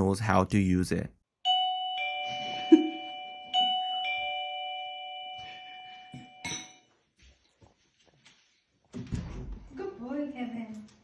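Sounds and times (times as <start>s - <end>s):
doorbell ding-dong chime: 1.4s - 6.9s.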